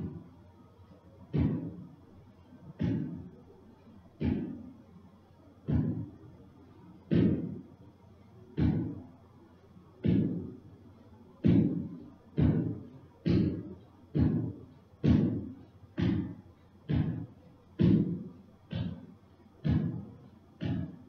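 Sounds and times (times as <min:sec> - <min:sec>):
deep percussive thuds: 0:01.3 - 0:01.9, 0:02.7 - 0:03.3, 0:04.2 - 0:04.7, 0:05.6 - 0:06.2, 0:07.1 - 0:07.6, 0:08.6 - 0:09.1, 0:10.0 - 0:10.6, 0:11.4 - 0:21.0.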